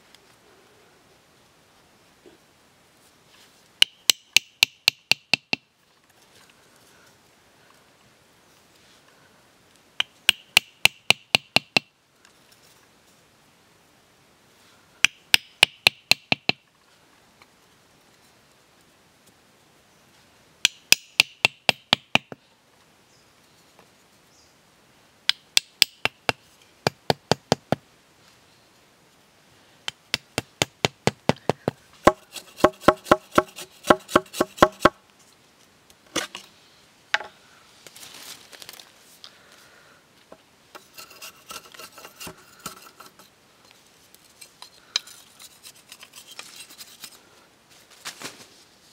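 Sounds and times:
knife tapping bamboo stakes: 0:03.8 - 0:05.7, 0:10.0 - 0:11.9, 0:15.0 - 0:16.6, 0:20.6 - 0:22.4, 0:25.3 - 0:27.8, 0:29.9 - 0:35.0
knife shaving bamboo stick: 0:29.9 - 0:34.9, 0:40.8 - 0:43.3, 0:44.2 - 0:47.2.

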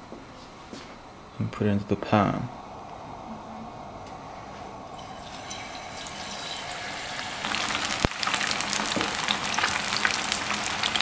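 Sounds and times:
fish frying in hot oil: 0:05.0 - 0:11.0.

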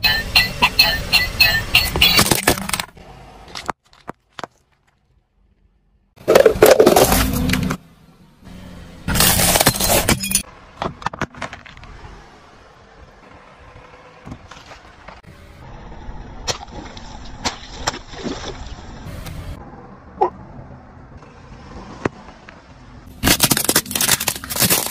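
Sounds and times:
car tyre crushing objects: 0:01.7 - 0:07.8, 0:09.0 - 0:12.2, 0:16.3 - 0:19.2, 0:21.8 - 0:24.9
peanut shells crackling and crunching: 0:23.2 - 0:24.9.

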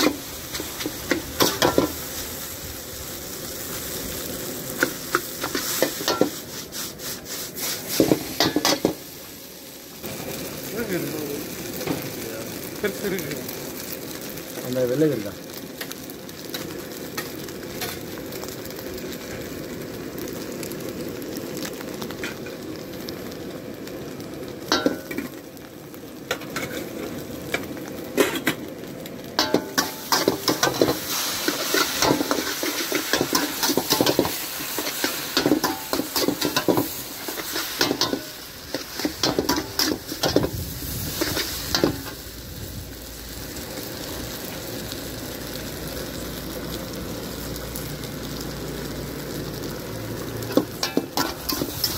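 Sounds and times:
spatula scraping and clanking on wok: 0:00.0 - 0:02.3, 0:04.8 - 0:09.1, 0:24.7 - 0:25.4, 0:26.3 - 0:28.6, 0:29.4 - 0:42.2, 0:50.4 - 0:51.9
noodles sizzling in a wok: 0:00.0 - 0:51.9.

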